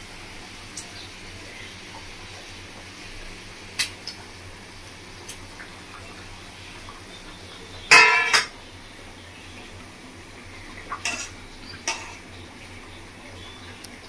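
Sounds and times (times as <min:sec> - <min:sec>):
steel cookware clinking: 0:07.9 - 0:08.5, 0:11.0 - 0:12.2.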